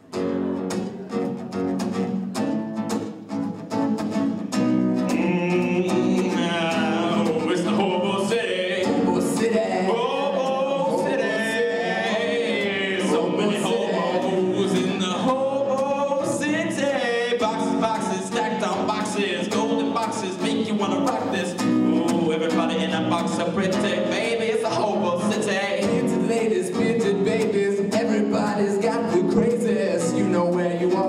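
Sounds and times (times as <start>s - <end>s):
acoustic guitar strumming: 0.0s - 31.0s
man singing: 5.0s - 31.0s.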